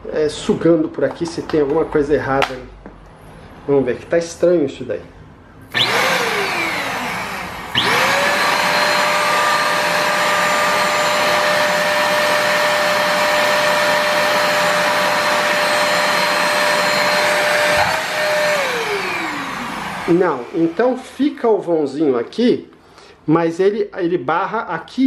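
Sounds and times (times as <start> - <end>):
vacuum cleaner motor whining: 5.7 - 21.2.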